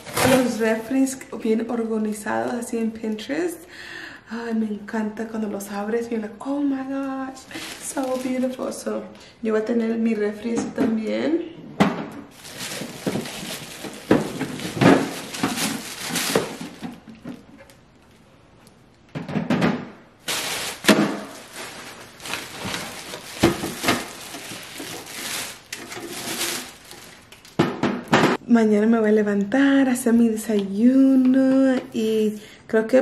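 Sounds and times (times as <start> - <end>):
bubble wrap and plastic crinkling: 7.0 - 8.9, 12.3 - 18.8, 20.2 - 27.8.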